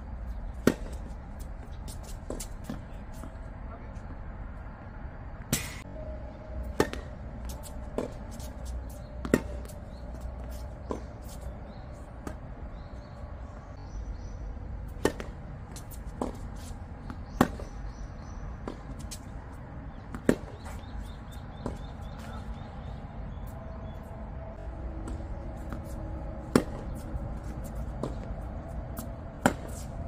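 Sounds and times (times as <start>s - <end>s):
low rumble of wind: 0.0s - 30.0s
rackets hitting tennis ball: 0.4s - 3.4s, 5.4s - 5.9s, 6.6s - 12.9s, 14.9s - 22.6s, 24.9s - 30.0s.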